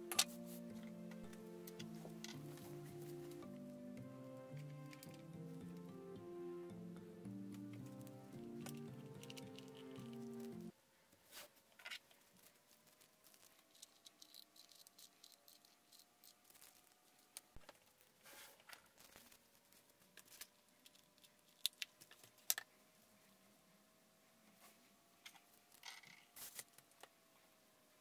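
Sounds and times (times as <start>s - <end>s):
instrumental background music: 0.0s - 10.7s.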